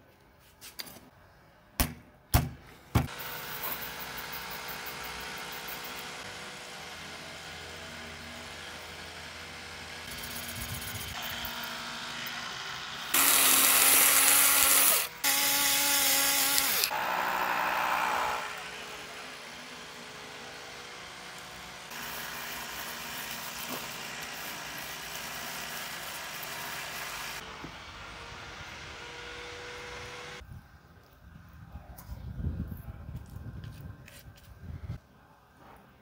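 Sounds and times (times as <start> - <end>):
background noise: 0.0 - 3.8, 30.4 - 36.0
small motor whirring: 10.0 - 19.2.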